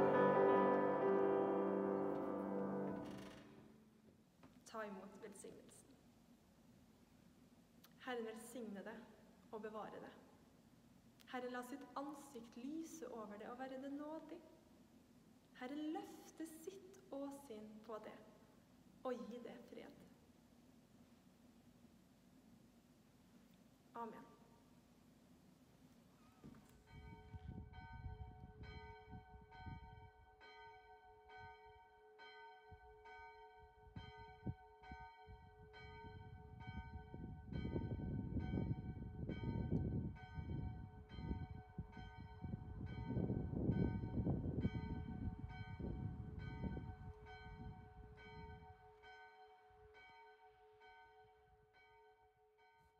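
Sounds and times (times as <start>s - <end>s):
church bell ringing: 0.0s - 3.1s, 26.8s - 52.9s.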